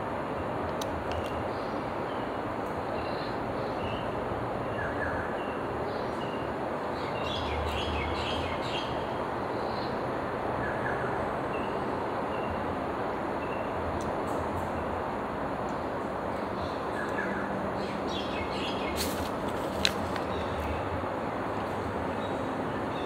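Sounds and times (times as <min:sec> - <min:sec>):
background hiss and rumble: 0:00.0 - 0:23.0
small birds chirping: 0:15.7 - 0:23.0.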